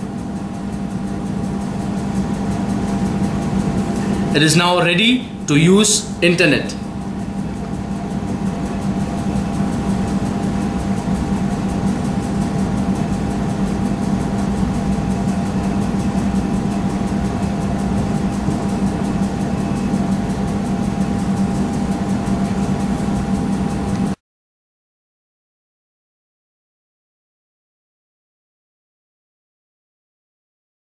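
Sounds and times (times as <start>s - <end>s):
machine hum and hiss: 0.0s - 24.2s.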